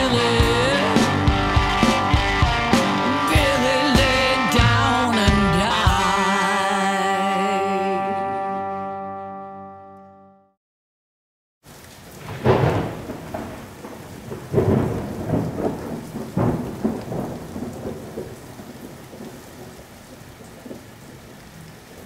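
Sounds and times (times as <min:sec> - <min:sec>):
steady rain: 0:11.6 - 0:22.0
thunder rolling: 0:12.2 - 0:19.7.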